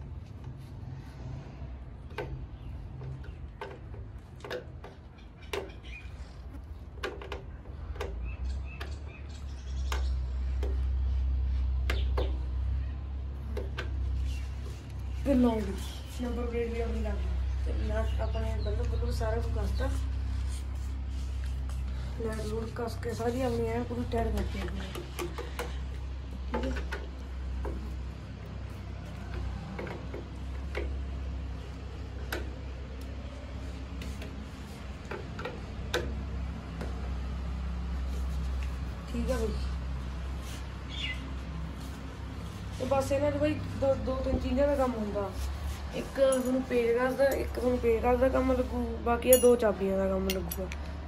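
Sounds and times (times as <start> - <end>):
hand tools clicking and knocking: 24.2 - 28.1.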